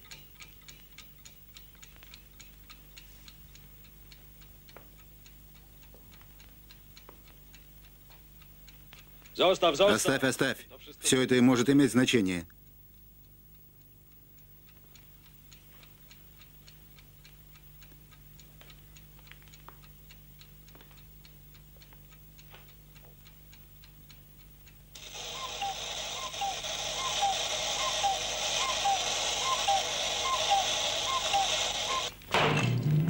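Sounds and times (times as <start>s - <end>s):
clock ticking: 0.0s - 33.0s
loud rattling alarm ring: 25.0s - 32.1s.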